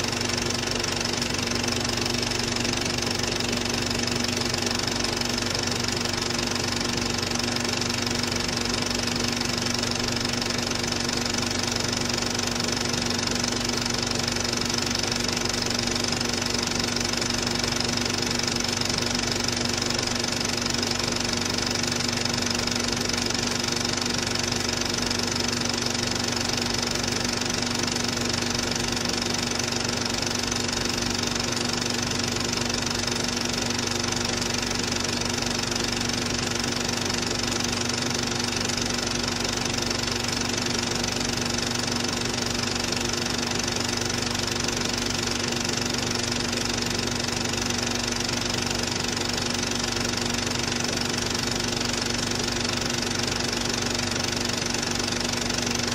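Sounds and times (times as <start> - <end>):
film projector whirring: 0.0 - 55.9.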